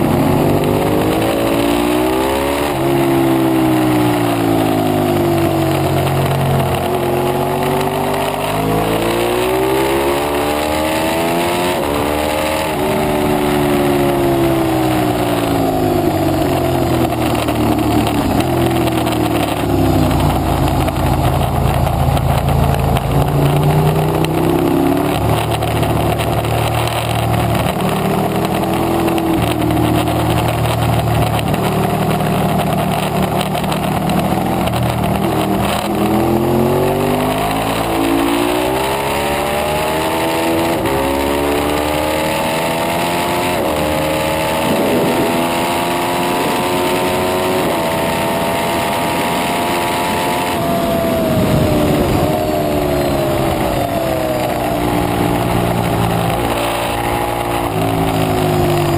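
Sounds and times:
motorcycle engine accelerating: 0.0s - 58.9s
wind rushing: 50.6s - 56.6s.

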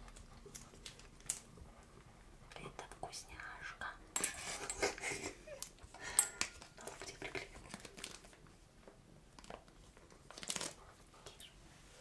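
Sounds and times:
plastic pouch crinkling: 6.7s - 8.5s, 9.4s - 10.8s.

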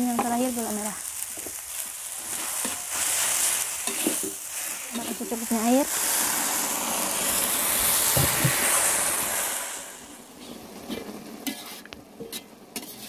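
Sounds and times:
stir-fry sizzling in a pan: 0.0s - 13.0s.

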